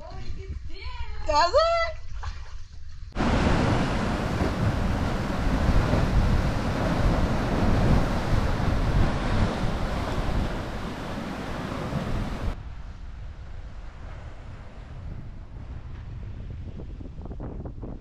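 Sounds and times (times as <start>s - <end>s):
wind buffeting the microphone: 0.0s - 18.0s
heavy low rumble: 3.2s - 12.6s
ocean surf rushing: 3.2s - 12.6s.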